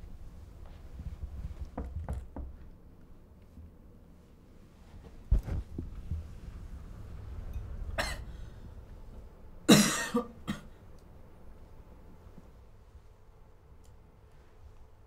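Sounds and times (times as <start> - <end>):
person coughing: 8.0 - 8.3, 9.7 - 10.8.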